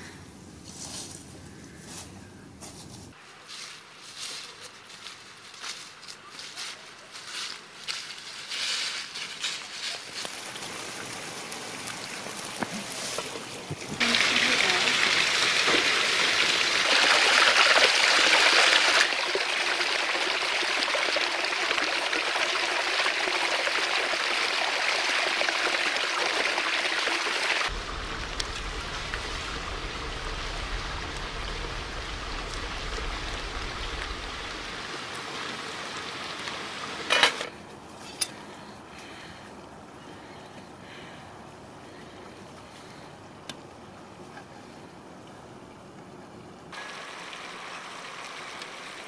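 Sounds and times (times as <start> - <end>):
water gushing from pipe: 10.4 - 37.1
low rumble: 27.7 - 35.5.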